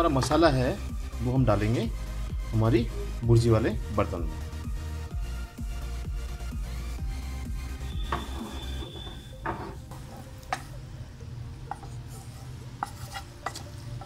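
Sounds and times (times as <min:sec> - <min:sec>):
wooden spatula scraping a pan: 0:08.0 - 0:10.7, 0:11.7 - 0:14.0.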